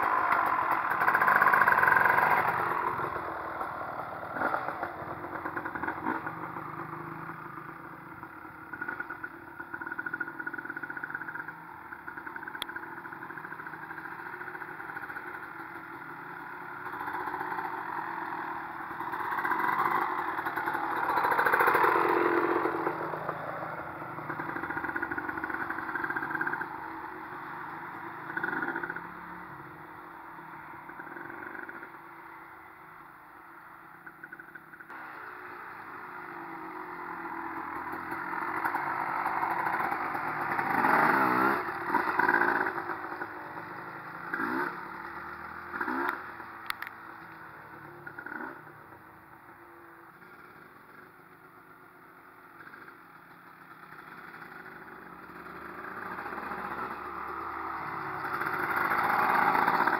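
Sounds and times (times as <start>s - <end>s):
dirt bike engine revving: 0.0s - 7.3s, 16.2s - 29.4s, 34.9s - 46.6s, 54.2s - 59.9s
small pit bike engine running: 0.0s - 59.9s.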